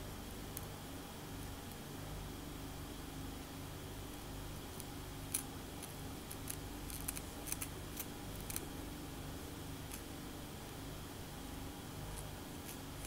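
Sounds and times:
low steady hum: 0:00.0 - 0:13.0
fingernails scratching scalp: 0:05.3 - 0:08.6.

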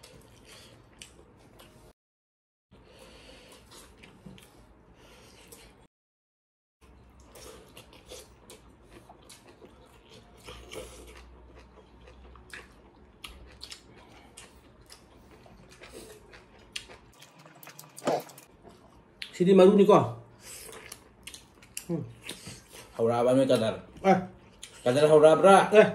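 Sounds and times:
chewing smacks and clicks: 0:10.4 - 0:17.1.

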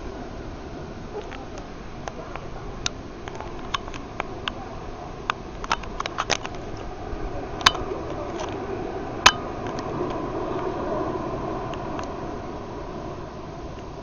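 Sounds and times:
storm wind rushing: 0:06.5 - 0:14.0.

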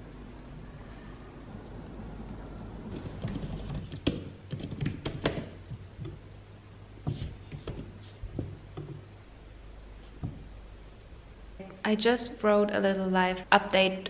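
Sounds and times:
computer keyboard typing: 0:02.9 - 0:06.2, 0:07.2 - 0:08.0.

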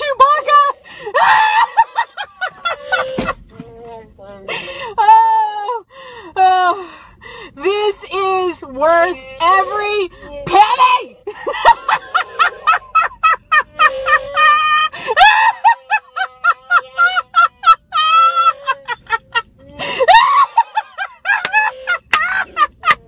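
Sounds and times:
woman laughing uncontrollably: 0:01.2 - 0:03.4, 0:11.3 - 0:23.0.

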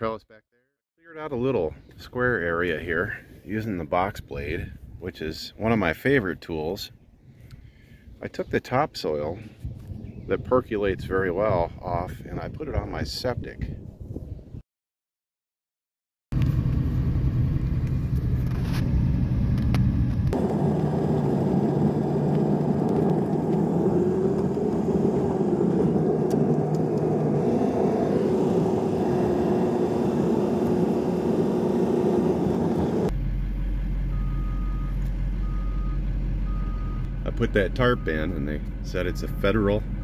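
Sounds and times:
deep hum: 0:16.4 - 0:40.0
engine and road noise in cab: 0:16.4 - 0:40.0
reversing beeps: 0:34.1 - 0:37.1, 0:39.0 - 0:39.5.

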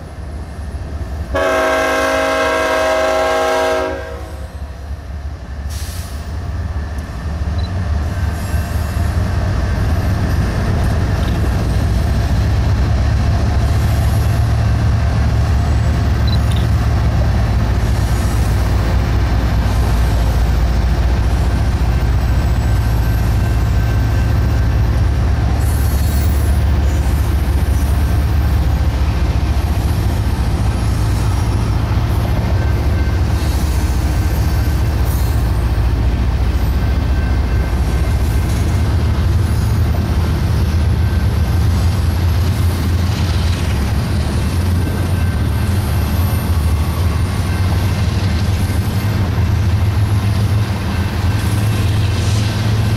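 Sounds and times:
train wheels rumbling on rails: 0:00.0 - 0:52.9.

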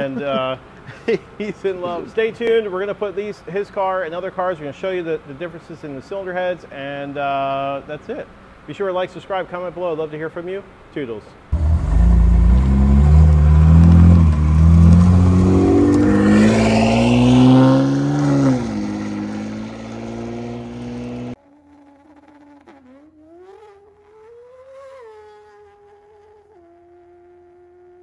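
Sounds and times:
car engine accelerating hard: 0:11.5 - 0:21.4.

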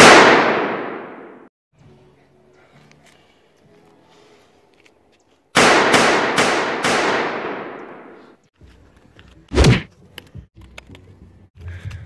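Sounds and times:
pistol shots: 0:00.0 - 0:01.4, 0:05.6 - 0:08.2
gunshot echo: 0:00.0 - 0:01.5, 0:05.6 - 0:08.4.

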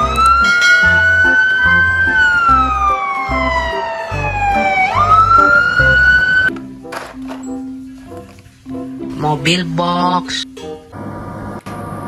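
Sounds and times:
fire engine siren wailing: 0:00.0 - 0:06.6.

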